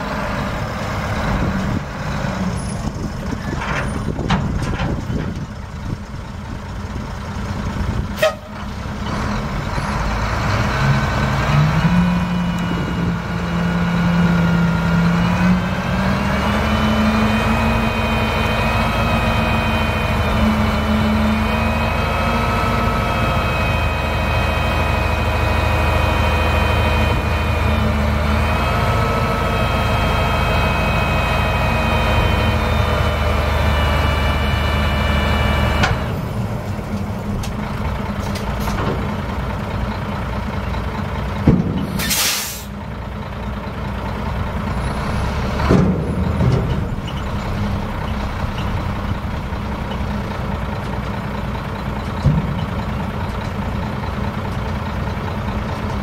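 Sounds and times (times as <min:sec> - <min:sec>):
diesel truck engine revving: 0:00.0 - 0:56.0
dump bed knocks: 0:03.2 - 0:05.6, 0:41.4 - 0:42.0, 0:45.6 - 0:47.0, 0:52.1 - 0:53.2
air release hiss: 0:42.0 - 0:42.7.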